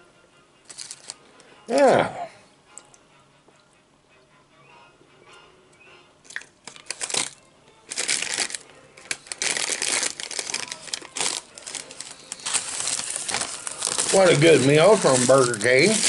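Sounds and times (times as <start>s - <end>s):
paper bag crinkling: 6.7s - 16.0s.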